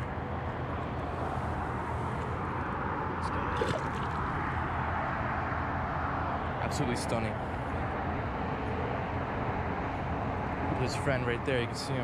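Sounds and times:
highway traffic noise: 0:00.0 - 0:12.0
light splash in shallow water: 0:03.5 - 0:04.3.

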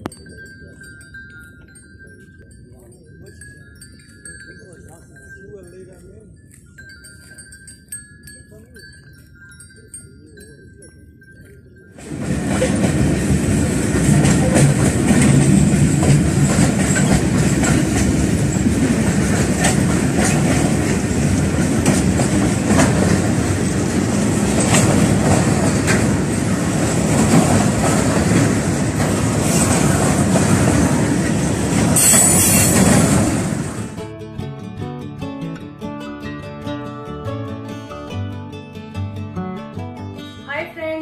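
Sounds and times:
train wheels rumbling on rails: 0:11.9 - 0:34.0
wheels clacking over rail joints: 0:11.9 - 0:34.0
high wheel squeal: 0:32.0 - 0:33.0.

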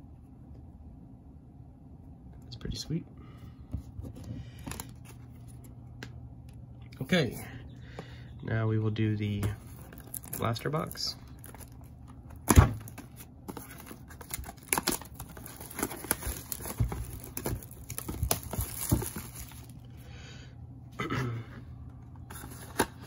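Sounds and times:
wrapper and cardboard crinkling: 0:09.4 - 0:19.9.

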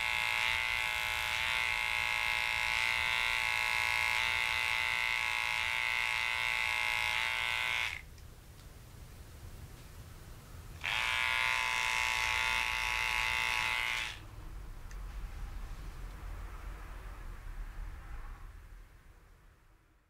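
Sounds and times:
electric pet clipper buzzing: 0:00.0 - 0:08.1, 0:10.8 - 0:14.2.

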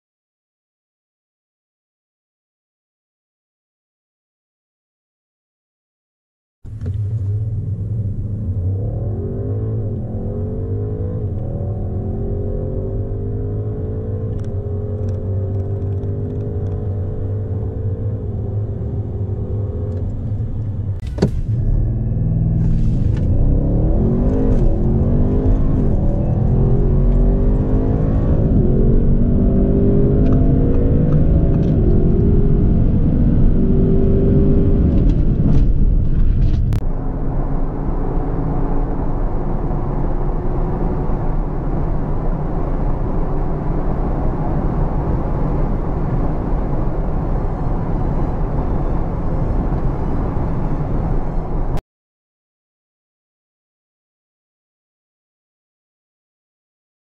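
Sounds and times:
car engine accelerating: 0:06.7 - 0:51.8.

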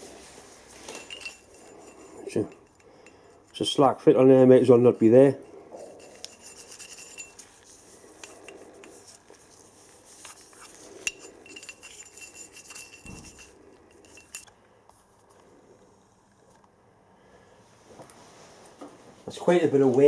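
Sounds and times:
metal clinks and scrapes: 0:00.0 - 0:03.8, 0:04.6 - 0:14.5
metal ringing: 0:00.8 - 0:03.6, 0:04.7 - 0:09.0, 0:11.0 - 0:14.5.

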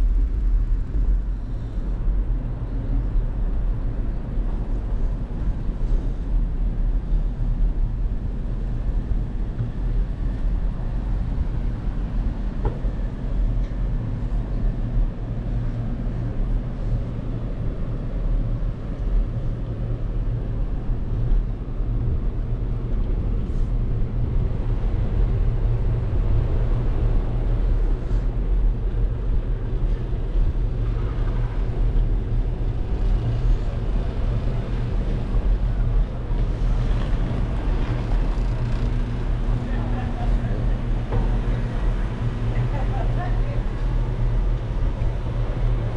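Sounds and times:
bicycle tyres rolling on pavement: 0:21.2 - 0:45.9.

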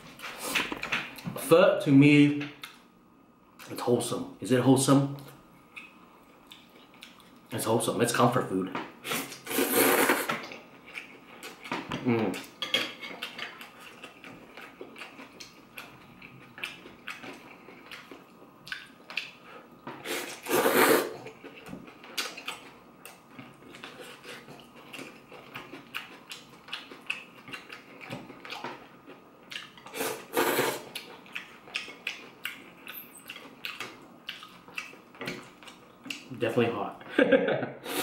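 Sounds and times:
loud noodle slurps: 0:09.1 - 0:10.4, 0:20.0 - 0:21.2, 0:29.9 - 0:30.9.

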